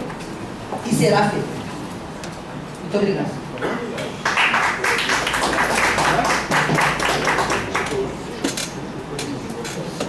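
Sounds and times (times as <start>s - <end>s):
murmuring voices: 3.4s - 10.0s
audience applauding: 4.2s - 8.2s.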